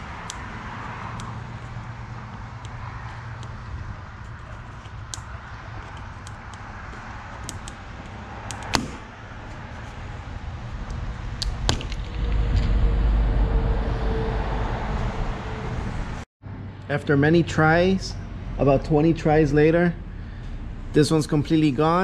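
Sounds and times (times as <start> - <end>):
low rumble: 10.0 - 16.8.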